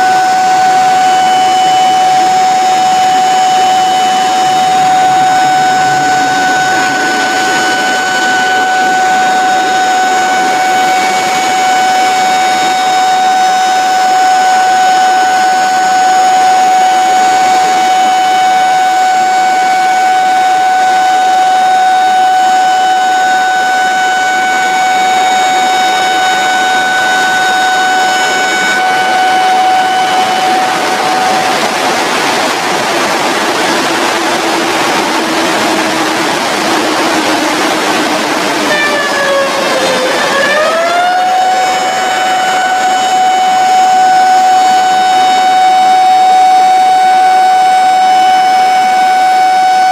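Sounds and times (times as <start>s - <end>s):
high-pitched tone: 0.0s - 45.9s
water rushing down dam face: 0.0s - 49.0s
water rushing over spillway: 23.3s - 47.0s.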